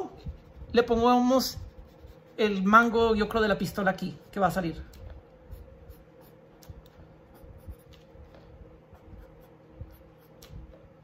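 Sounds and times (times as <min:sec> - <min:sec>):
faint steady hum: 0:00.0 - 0:11.0
pencil scratching on paper: 0:00.2 - 0:03.0, 0:05.5 - 0:06.5, 0:07.2 - 0:10.4.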